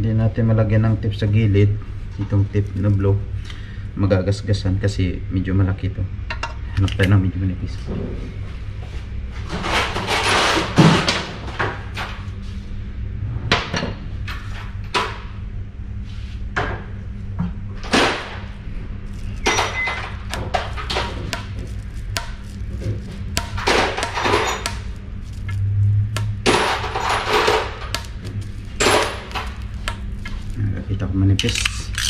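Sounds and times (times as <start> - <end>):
steady low hum: 0.0 - 32.0
metal tools clinking: 19.1 - 20.2, 26.4 - 30.7, 31.3 - 32.0.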